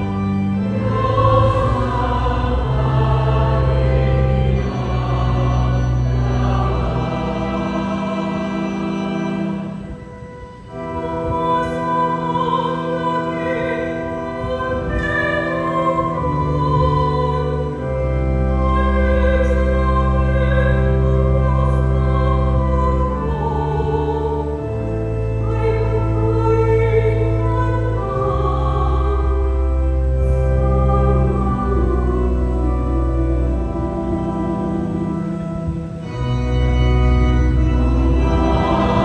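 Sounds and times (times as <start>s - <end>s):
keyboard held chords: 0.0s - 39.0s
woman singing into a microphone: 11.0s - 17.7s, 18.5s - 24.5s.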